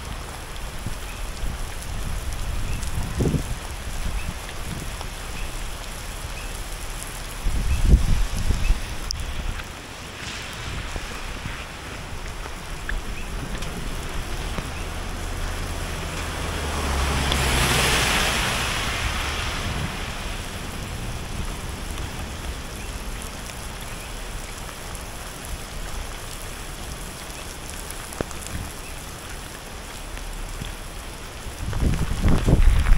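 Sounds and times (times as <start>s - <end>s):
steady rain falling: 0.0s - 32.9s
wind on microphone: 0.7s - 5.2s, 7.3s - 23.8s, 31.4s - 32.9s.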